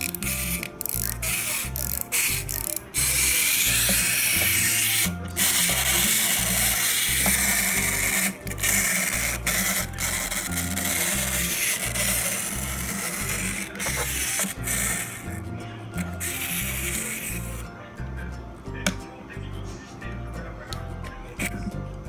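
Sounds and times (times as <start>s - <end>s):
background music with bass line: 0.0s - 22.0s.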